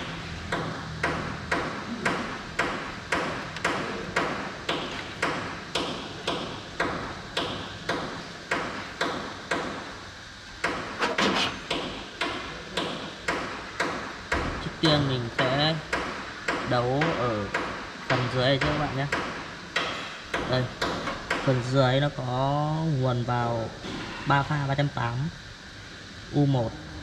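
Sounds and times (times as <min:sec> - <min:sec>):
steady sharp knocking: 0:00.0 - 0:10.0, 0:10.6 - 0:21.8.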